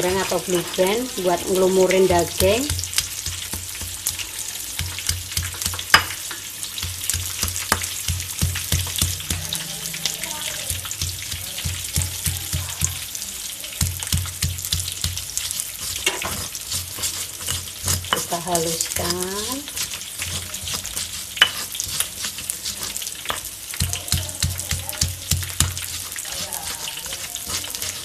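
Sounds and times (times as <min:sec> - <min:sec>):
peanuts frying in a wok: 0:00.0 - 0:28.0
stone pestle pounding in mortar: 0:02.2 - 0:04.2, 0:04.8 - 0:06.2, 0:06.8 - 0:09.5, 0:10.6 - 0:13.1, 0:13.8 - 0:18.4, 0:19.1 - 0:22.5, 0:23.3 - 0:28.0.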